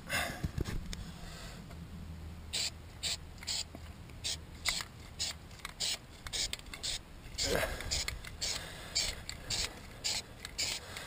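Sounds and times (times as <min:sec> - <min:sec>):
aerosol can spraying: 0:02.5 - 0:10.8.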